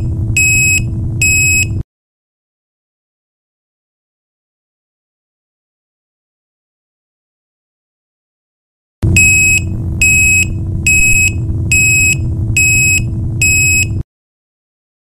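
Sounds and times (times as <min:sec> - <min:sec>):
high-pitched reversing alarm beeps: 0:00.0 - 0:01.8, 0:09.1 - 0:14.0
low background rumble: 0:00.0 - 0:01.8, 0:09.0 - 0:14.0.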